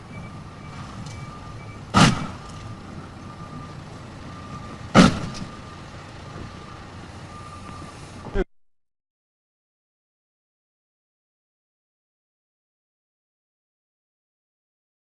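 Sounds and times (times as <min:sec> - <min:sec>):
car crashing into parked cars: 0:01.9 - 0:02.6, 0:04.9 - 0:05.5
faint short beep: 0:07.3 - 0:08.4.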